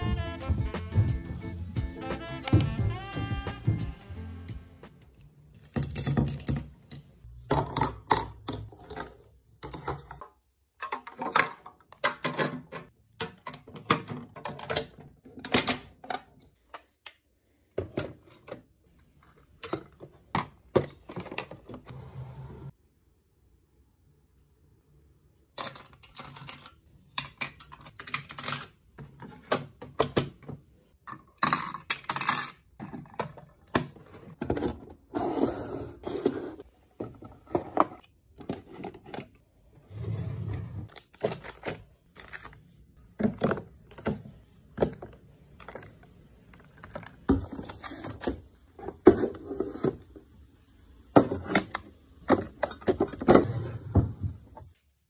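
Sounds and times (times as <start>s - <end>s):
small items clattering in drawer: 5.6s - 17.0s, 31.1s - 39.5s, 40.8s - 50.4s, 51.1s - 54.7s.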